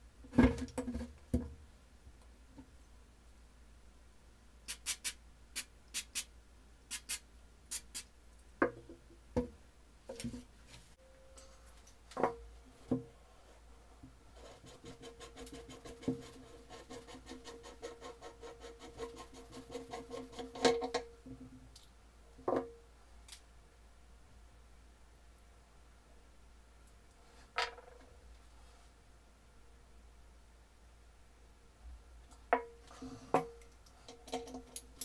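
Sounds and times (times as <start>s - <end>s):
spray can hissing: 4.7s - 6.3s, 6.9s - 8.1s.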